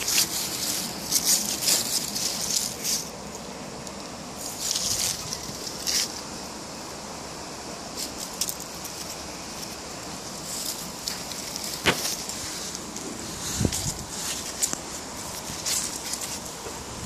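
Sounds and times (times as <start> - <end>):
dry leaves rustling and crackling: 0.0 - 6.9, 7.7 - 17.0.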